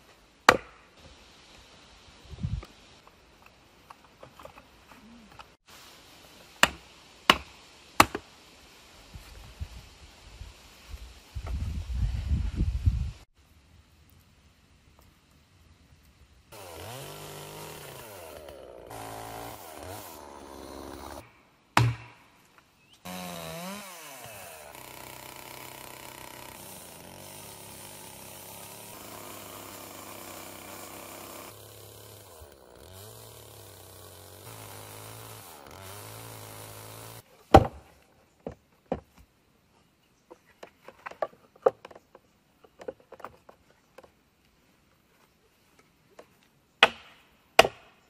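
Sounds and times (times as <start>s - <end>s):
chainsaw engine running: 16.5s - 21.2s, 23.1s - 37.2s.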